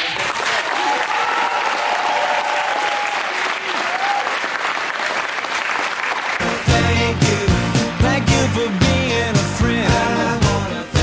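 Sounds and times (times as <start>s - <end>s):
crowd applauding: 0.0s - 10.9s
music: 6.4s - 11.0s.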